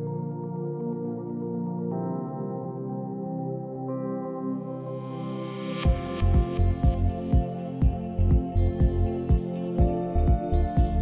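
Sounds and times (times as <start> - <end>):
synth chords: 0.0 - 11.0
kick drum beat: 5.9 - 11.0.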